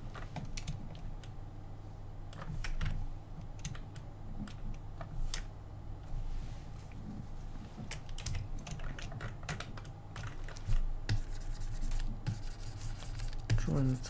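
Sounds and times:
low steady hum: 0.0s - 14.0s
keyboard and mouse clicks: 7.8s - 11.2s.

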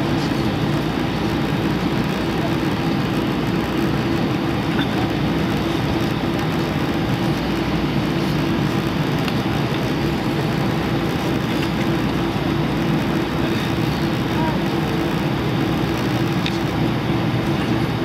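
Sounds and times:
jet engines at taxi thrust: 0.0s - 18.0s.

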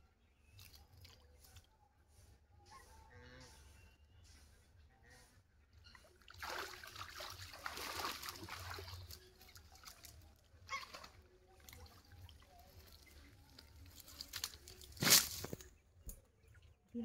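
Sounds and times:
water splashing and trickling: 0.2s - 2.1s, 5.7s - 17.0s.

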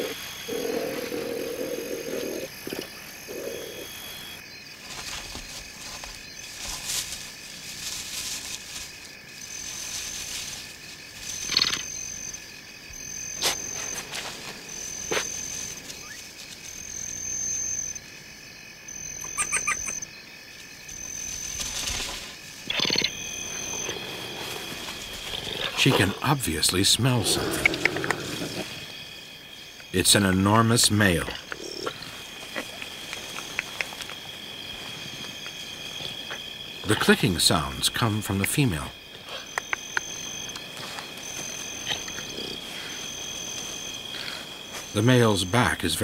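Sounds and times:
frogs calling: 0.0s - 46.0s
insects chirping: 0.0s - 46.0s
honey badger clicking calls: 19.1s - 20.1s, 27.3s - 28.6s, 31.4s - 34.2s, 39.3s - 40.7s.

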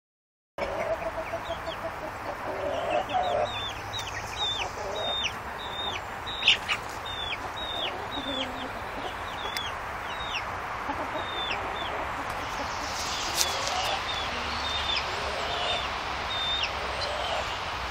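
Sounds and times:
chicks peeping: 0.6s - 17.9s.

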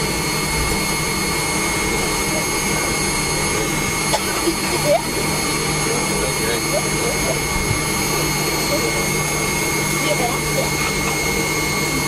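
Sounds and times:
jet engine cabin hum: 0.0s - 12.0s.

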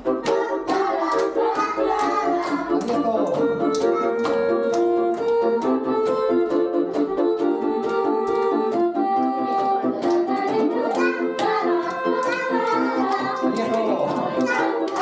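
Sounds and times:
street organ playing a tune: 2.6s - 10.9s.

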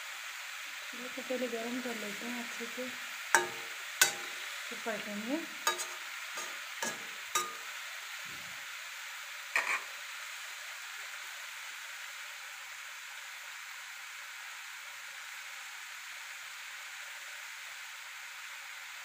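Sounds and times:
cheese cubes sizzling in oil: 0.0s - 19.0s
spatula tapping a pan: 3.4s - 4.7s, 5.7s - 7.7s, 9.6s - 9.8s.

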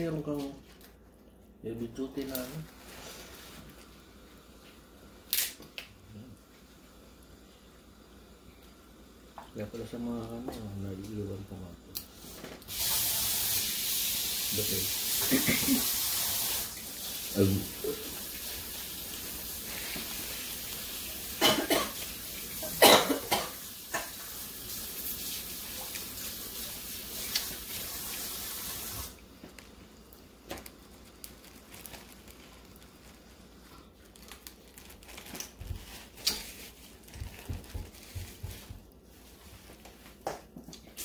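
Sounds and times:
tap water running into sink: 12.7s - 19.6s, 23.5s - 29.2s
person coughing: 15.2s - 15.9s, 21.4s - 22.0s, 22.6s - 24.1s.

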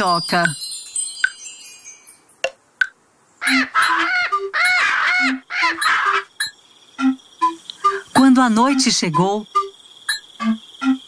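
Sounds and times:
chime shimmer: 0.0s - 2.4s
cartoon bird squawking caws: 3.4s - 6.5s.

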